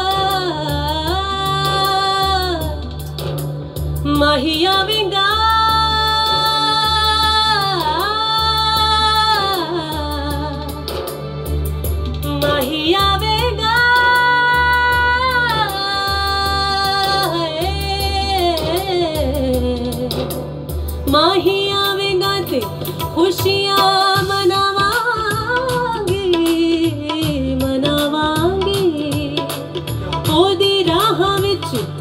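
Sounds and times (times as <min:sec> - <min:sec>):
electronic keyboard accompaniment: 0:00.0 - 0:32.0.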